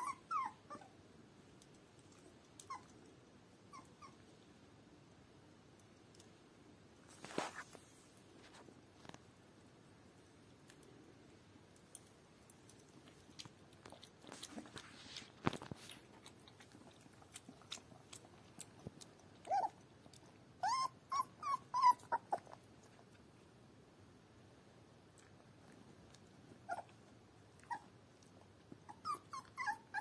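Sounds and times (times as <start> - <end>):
puppy whimpering: 0.0 - 1.0, 2.6 - 3.0, 3.7 - 4.2, 19.4 - 22.6, 26.6 - 27.0, 27.6 - 30.0
puppy whining: 0.0 - 1.0, 2.0 - 4.3, 13.9 - 23.1, 26.5 - 30.0
puppy lapping milk: 12.6 - 20.4.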